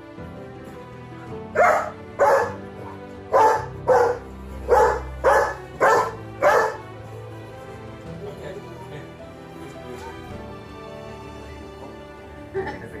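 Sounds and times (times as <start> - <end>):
background music: 0.0 - 13.0
dog barking: 1.6 - 6.9.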